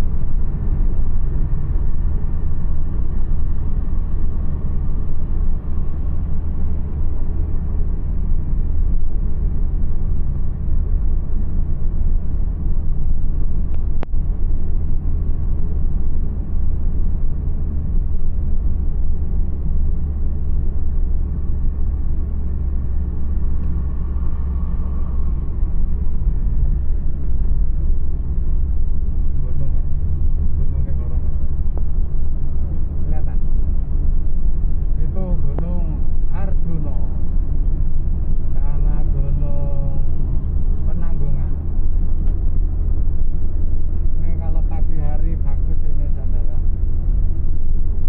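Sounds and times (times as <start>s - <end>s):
car engine and tyre rumble: 0.0s - 48.0s.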